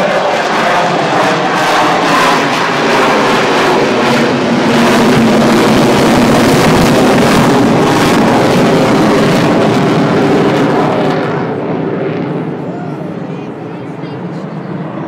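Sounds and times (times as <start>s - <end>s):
jet aircraft flying overhead: 0.0s - 15.0s.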